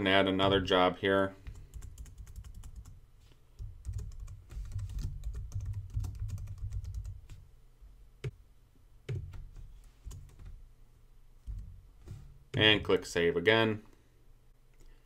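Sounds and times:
typing on computer keyboard: 0:01.5 - 0:03.0, 0:03.8 - 0:07.4.

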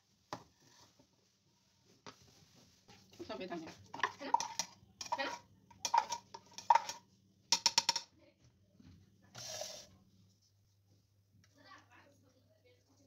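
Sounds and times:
metal spoon stirring in plastic cup: 0:03.6 - 0:07.0, 0:09.4 - 0:09.9.

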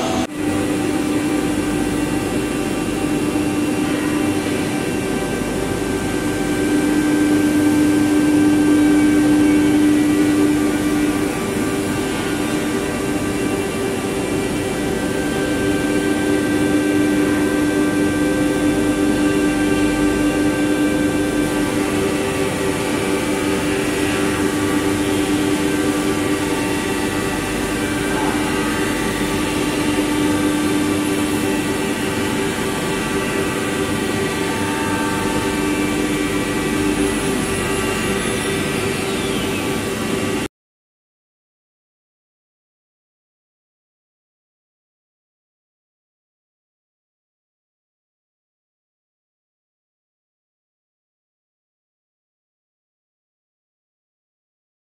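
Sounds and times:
mechanical machine noise: 0:00.0 - 0:40.5
router spindle hum and whine: 0:00.0 - 0:40.5.

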